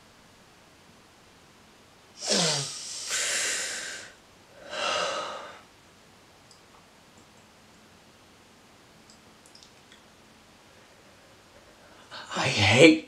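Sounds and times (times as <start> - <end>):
man groaning: 2.2 - 3.2
man exhaling heavily: 2.2 - 5.6.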